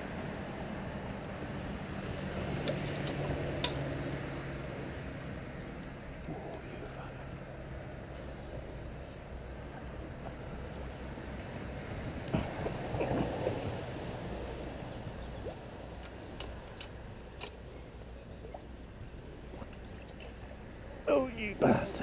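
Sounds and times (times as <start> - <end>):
outdoor background noise: 0.0 - 22.0
fish splashing in water: 9.5 - 20.8.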